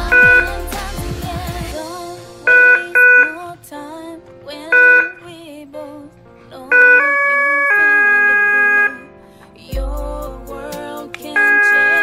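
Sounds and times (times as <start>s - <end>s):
loud electronic beeps: 0.0s - 0.6s, 2.5s - 3.4s
background music with singing: 0.0s - 12.0s.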